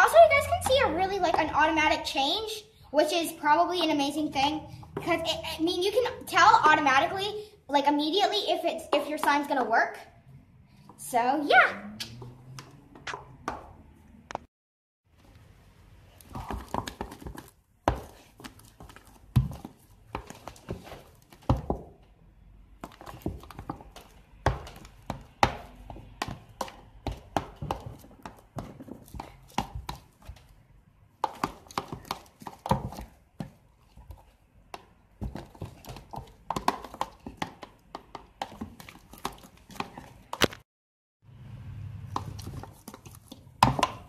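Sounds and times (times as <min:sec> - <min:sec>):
slime stirring: 0:15.2 - 0:22.0, 0:22.6 - 0:40.4, 0:41.9 - 0:44.0.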